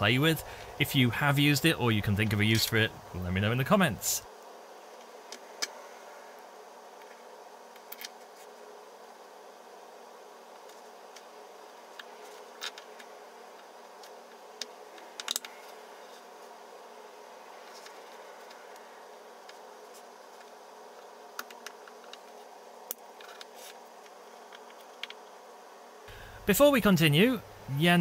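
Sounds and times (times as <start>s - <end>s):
faint hum: 0.0s - 28.0s
plastic parts clicking and tapping: 14.0s - 15.6s, 21.3s - 25.2s.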